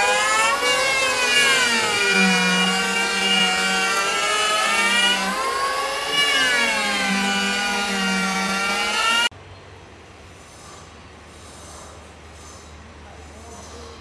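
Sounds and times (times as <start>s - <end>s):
electric hand planer whining: 0.0s - 9.3s.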